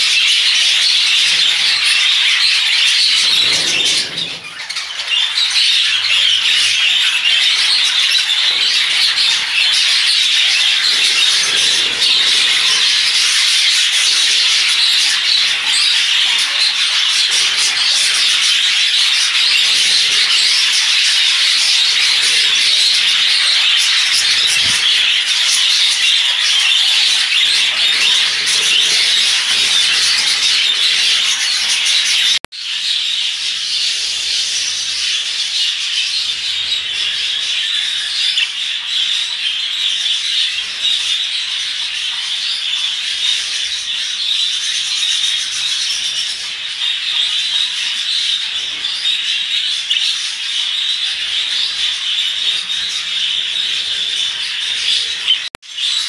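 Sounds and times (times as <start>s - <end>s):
budgerigar flock chattering: 0.0s - 56.0s.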